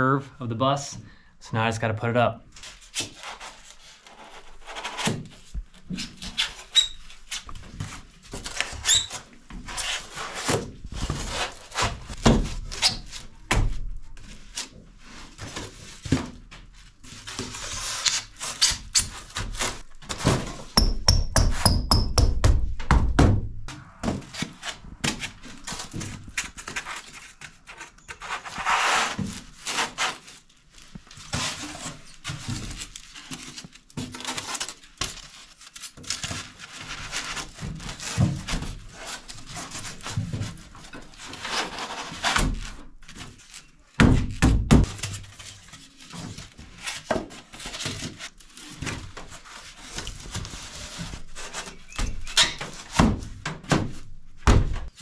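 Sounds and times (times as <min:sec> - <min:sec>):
foam scraping on metal: 0:24.0 - 0:30.2.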